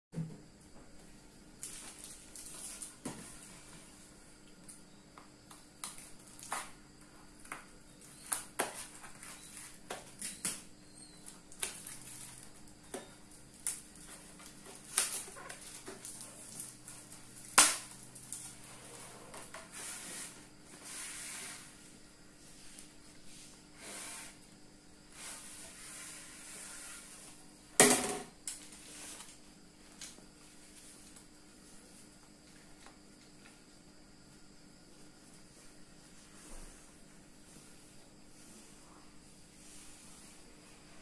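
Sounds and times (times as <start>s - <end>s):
plastic bag rustling and sliding: 18.5s - 21.9s.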